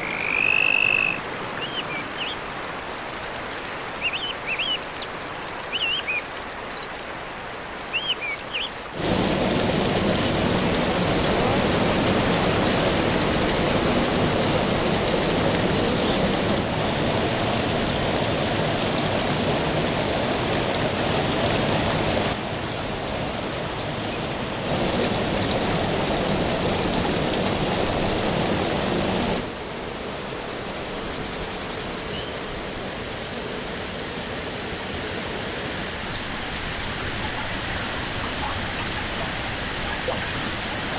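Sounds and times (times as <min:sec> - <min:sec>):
bird chirps: 0:00.0 - 0:02.6, 0:04.0 - 0:05.1, 0:05.7 - 0:06.9, 0:07.9 - 0:08.8, 0:14.9 - 0:18.4
stream running over rocks: 0:00.0 - 0:40.9.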